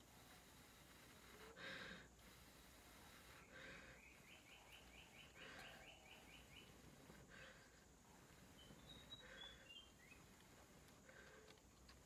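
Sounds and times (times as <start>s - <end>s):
bird chirping: 2.8s - 10.8s.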